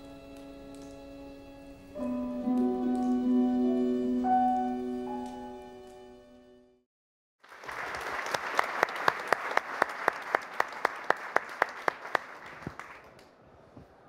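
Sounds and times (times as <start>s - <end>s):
audience applauding: 7.4s - 13.3s
hands clapping close by: 7.5s - 13.4s.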